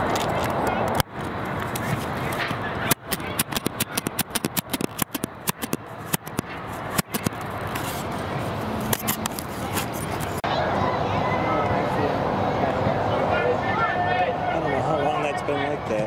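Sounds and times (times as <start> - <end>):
sharp clicks and knocks: 0.0 - 8.2, 8.8 - 10.4
steady background noise: 0.0 - 16.0.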